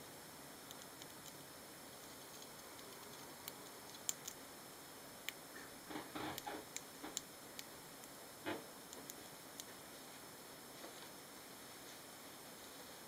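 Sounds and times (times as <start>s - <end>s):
hamsters scrabbling: 2.0s - 4.4s
hamster clicks: 2.4s - 4.4s.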